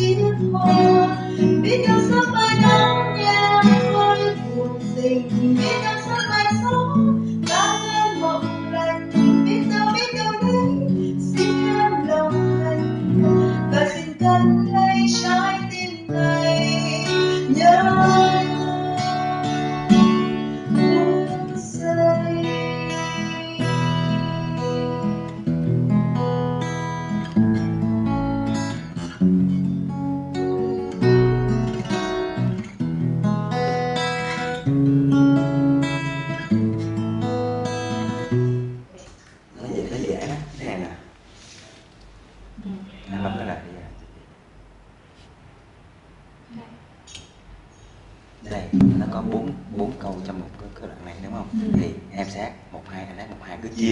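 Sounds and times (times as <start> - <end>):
woman singing a slow ballad: 0.0 - 25.3
strummed acoustic guitar: 0.0 - 39.0, 48.7 - 49.8.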